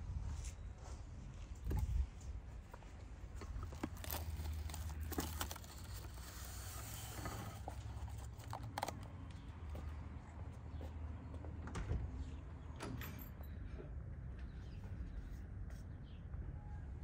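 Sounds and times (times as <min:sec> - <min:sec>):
soft handling clicks and scrapes: 0:02.7 - 0:09.9.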